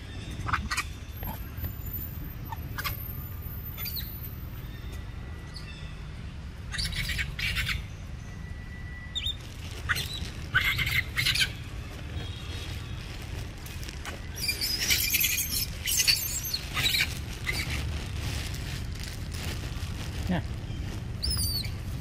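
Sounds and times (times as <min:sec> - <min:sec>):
dry leaves rustling underfoot: 0:09.1 - 0:22.0
young monkeys squealing: 0:09.9 - 0:11.6, 0:14.4 - 0:17.8, 0:21.2 - 0:21.8.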